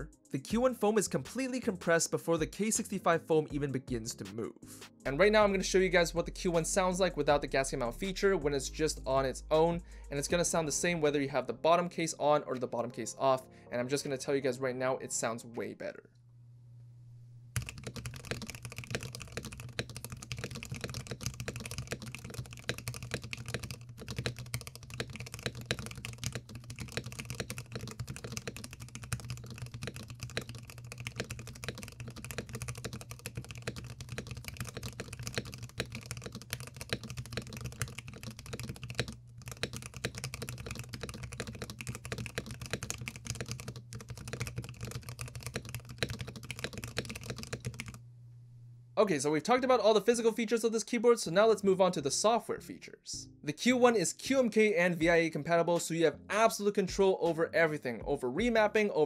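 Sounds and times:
fast typing on mechanical keyboard: 17.6 - 48.0.

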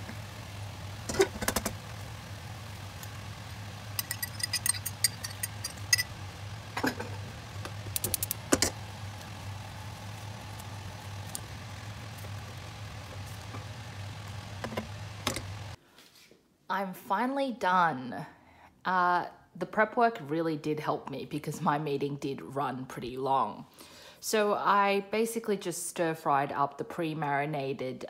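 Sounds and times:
steady low hum: 0.0 - 15.8
spatula and pan clinking on bowl: 4.0 - 6.1.

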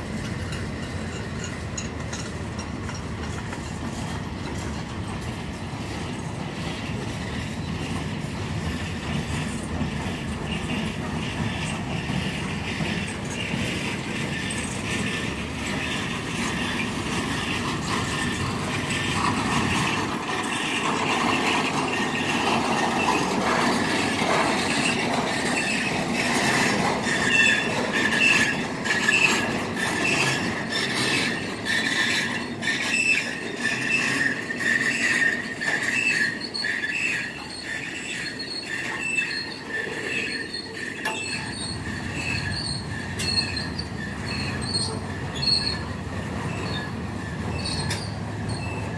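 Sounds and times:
clicks of passing rail cars: 0.0 - 48.9
train wheels squealing: 0.0 - 48.9.

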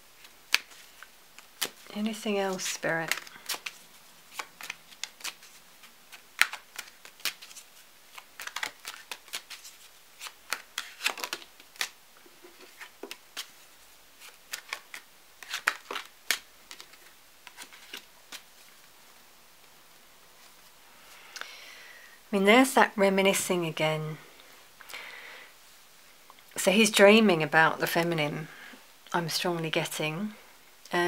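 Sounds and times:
cards shuffling and snapping: 0.2 - 13.6, 14.2 - 18.7.

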